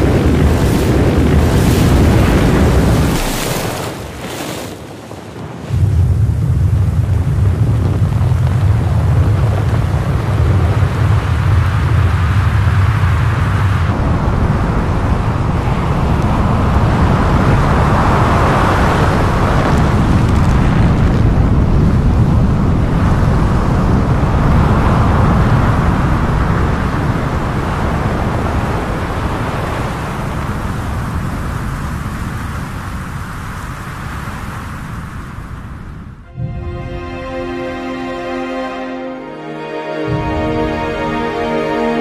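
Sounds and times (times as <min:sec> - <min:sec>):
avalanche rumbling: 0:00.0 - 0:42.0.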